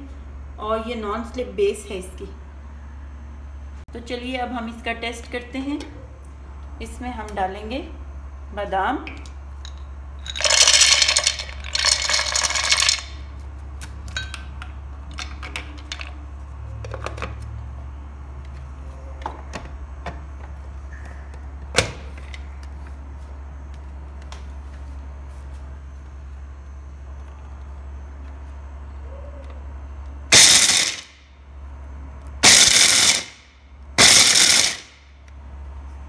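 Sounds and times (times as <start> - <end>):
steady low hum: 0.0 - 36.0
almonds rattling into plastic jar: 10.3 - 13.2.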